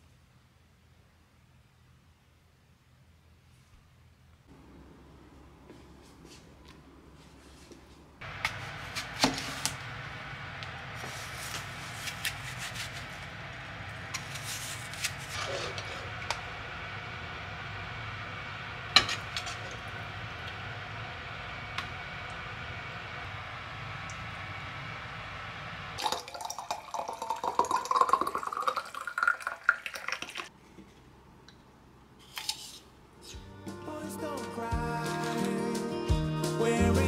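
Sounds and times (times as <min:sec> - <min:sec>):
steady background hum: 0:03.6 - 0:28.1.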